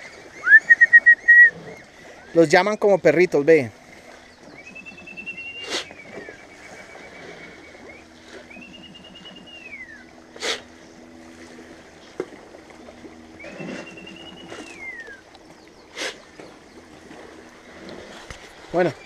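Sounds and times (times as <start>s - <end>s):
person whistling long notes: 0.4s - 1.5s.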